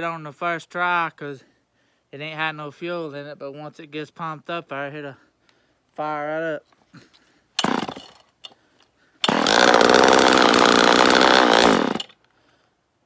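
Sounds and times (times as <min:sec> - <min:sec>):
chainsaw engine starting and running: 0:07.6 - 0:08.2, 0:09.2 - 0:12.2
chainsaw pull-start: 0:07.6 - 0:08.5, 0:09.2 - 0:12.2.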